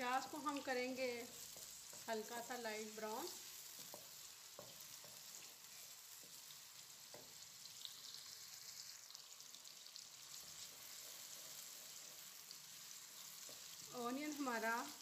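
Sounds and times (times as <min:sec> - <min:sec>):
onions sizzling in oil: 0:00.0 - 0:15.0
wooden spoon stirring: 0:00.2 - 0:07.7.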